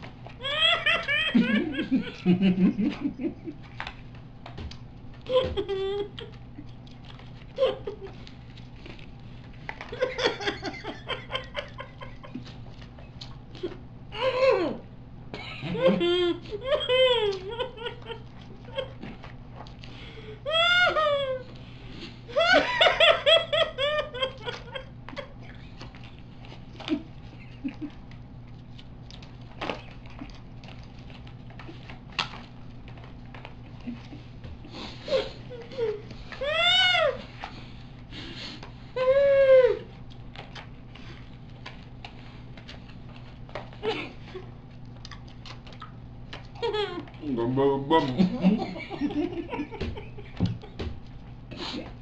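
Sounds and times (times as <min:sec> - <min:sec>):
people laughing: 0:00.4 - 0:03.6, 0:05.2 - 0:06.3, 0:09.9 - 0:12.5, 0:15.4 - 0:19.1, 0:22.3 - 0:25.3, 0:26.8 - 0:28.0, 0:47.9 - 0:50.8
people giggling: 0:00.4 - 0:03.7, 0:05.2 - 0:06.4, 0:07.6 - 0:08.2, 0:09.8 - 0:12.6, 0:15.3 - 0:19.2, 0:20.5 - 0:21.5, 0:22.3 - 0:25.6, 0:26.8 - 0:28.0, 0:43.8 - 0:44.5, 0:46.6 - 0:47.3, 0:47.9 - 0:50.9
mouth sounds: 0:47.2 - 0:48.4.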